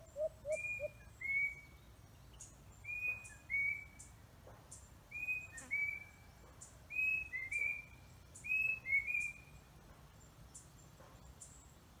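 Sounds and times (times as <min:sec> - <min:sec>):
coati whistling calls: 0:00.0 - 0:01.6.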